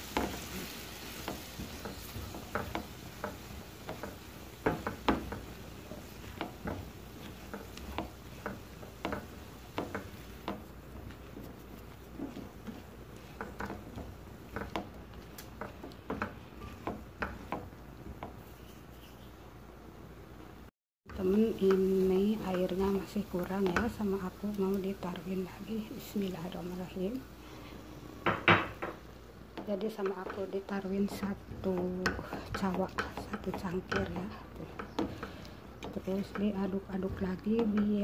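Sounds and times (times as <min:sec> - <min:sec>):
spatula scraping and knocking pan: 0:00.0 - 0:19.2, 0:21.1 - 0:27.2, 0:28.2 - 0:38.0
faint sizzle: 0:00.0 - 0:19.8, 0:21.1 - 0:38.0.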